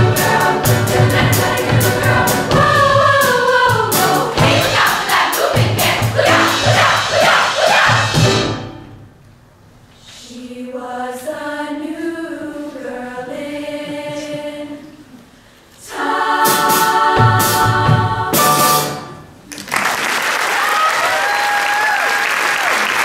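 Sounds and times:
women's choir singing: 0:00.0 - 0:08.5, 0:10.1 - 0:15.2, 0:15.8 - 0:18.9
audience applause: 0:19.5 - 0:23.0.

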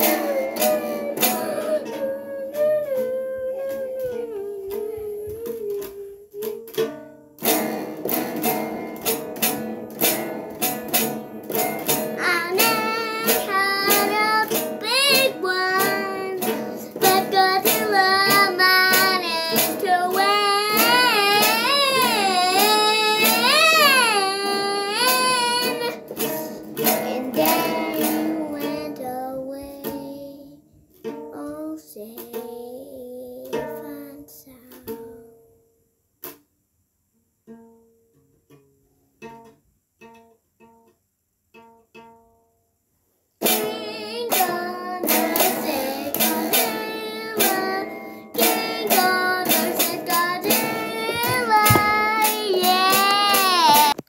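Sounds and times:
person singing: 0:00.0 - 0:07.0, 0:11.5 - 0:30.6, 0:31.4 - 0:35.4, 0:43.4 - 0:54.0
strummed guitar: 0:00.0 - 0:35.5, 0:43.4 - 0:54.0.

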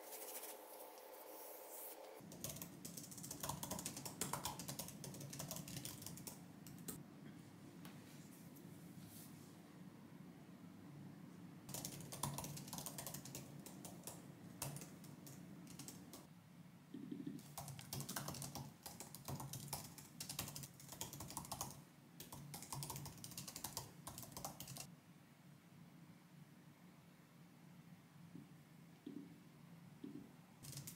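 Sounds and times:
faint low hum: 0:00.0 - 0:30.9
keyboard typing clicks: 0:02.3 - 0:07.0, 0:11.7 - 0:16.3, 0:17.2 - 0:24.9, 0:30.6 - 0:30.9.

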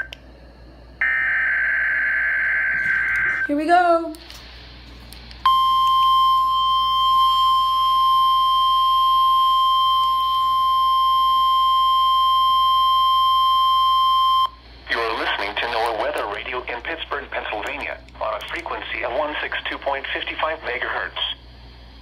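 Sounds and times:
steady high alarm beep: 0:05.5 - 0:14.6.

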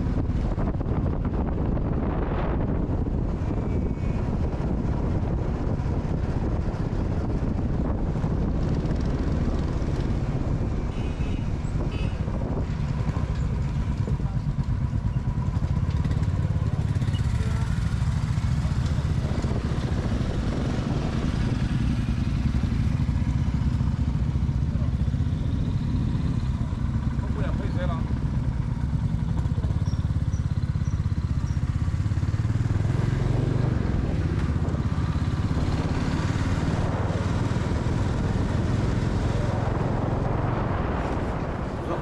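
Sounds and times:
motorcycle engines rumbling: 0:00.0 - 0:42.0.

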